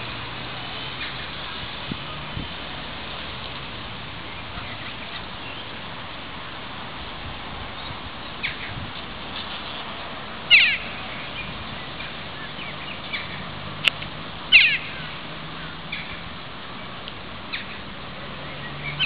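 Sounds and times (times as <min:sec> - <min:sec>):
geese calling: 0:10.5 - 0:11.4, 0:14.5 - 0:16.2.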